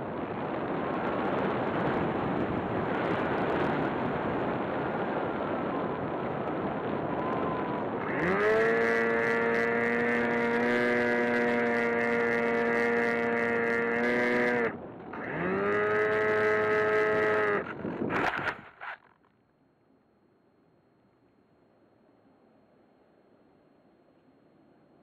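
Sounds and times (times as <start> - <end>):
electric motor and propeller whine: 0.0 - 19.1.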